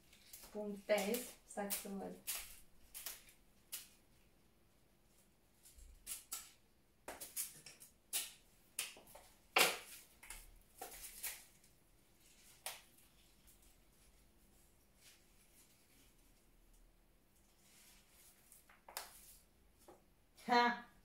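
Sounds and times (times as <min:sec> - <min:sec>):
flower stems rustling: 0:00.0 - 0:04.3, 0:09.8 - 0:16.8, 0:17.4 - 0:19.5.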